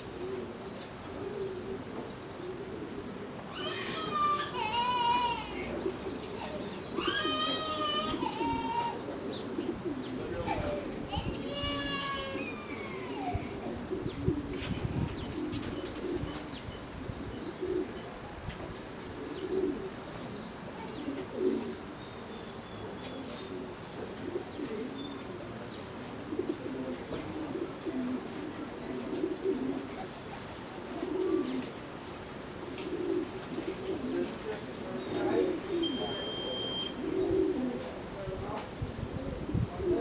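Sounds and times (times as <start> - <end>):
pigeons cooing: 0.0 - 40.0.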